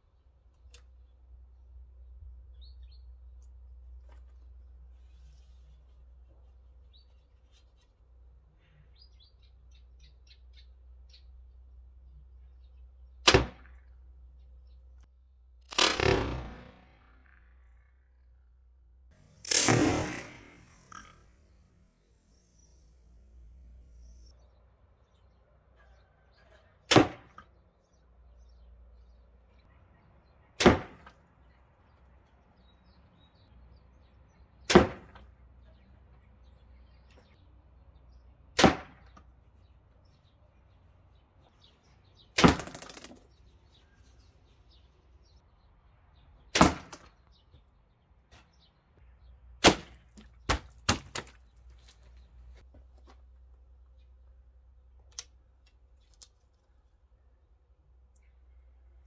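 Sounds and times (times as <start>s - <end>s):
arrows hitting target: 13.2s - 13.8s, 15.7s - 17.0s, 19.2s - 21.2s, 26.9s - 27.5s, 30.6s - 31.2s, 34.7s - 35.3s, 38.6s - 39.2s, 42.4s - 43.3s, 46.5s - 47.2s, 49.6s - 51.4s.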